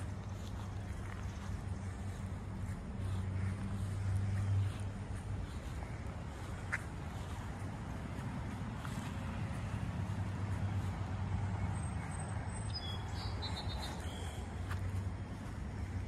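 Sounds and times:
steady low rumble: 0.0s - 12.6s
bird chirping: 11.6s - 14.6s.

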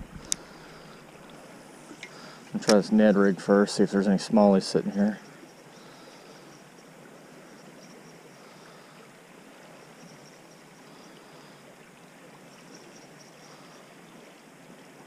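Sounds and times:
creek water running: 0.0s - 15.0s
faint high-pitched chirping: 5.2s - 8.6s.

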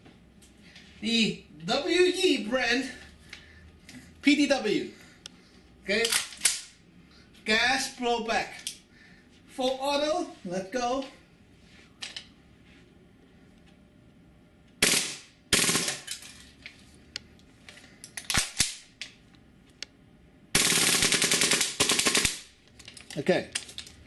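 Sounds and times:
airsoft gun firing bursts: 14.8s - 16.0s, 20.6s - 22.5s.

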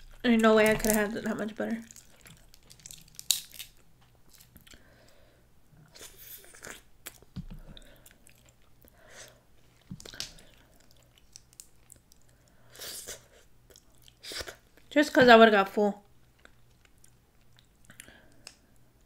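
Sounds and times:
crab shells cracking: 0.0s - 4.7s, 9.8s - 12.6s.

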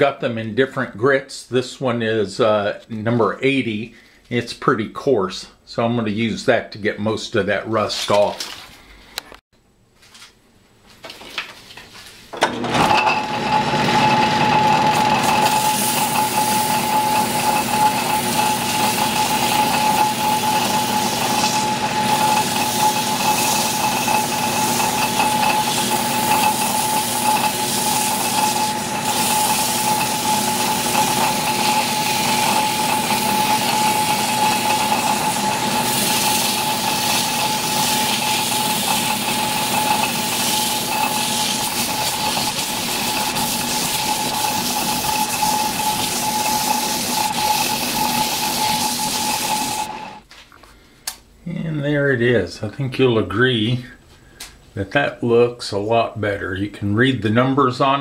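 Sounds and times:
lathe motor running: 12.5s - 50.2s
emery cloth scratching metal: 15.2s - 50.0s.

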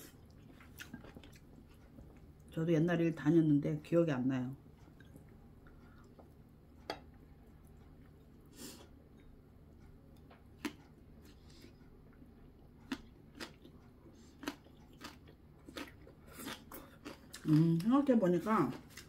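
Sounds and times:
person chewing: 0.0s - 2.5s, 4.8s - 17.9s, 18.7s - 19.0s
low steady hum: 0.0s - 19.0s.

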